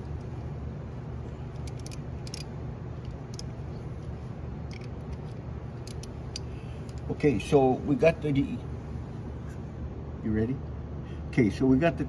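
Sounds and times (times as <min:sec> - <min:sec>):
steady low hum: 0:00.0 - 0:12.0
wrench clicking against metal: 0:01.5 - 0:03.5, 0:04.7 - 0:07.1.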